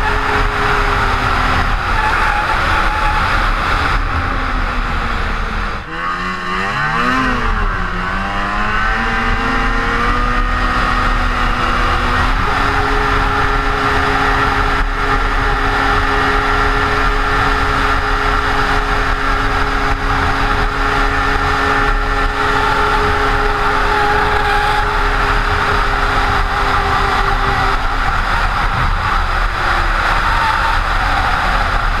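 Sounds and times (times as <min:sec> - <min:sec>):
snowmobile engine running: 0:00.0 - 0:32.0.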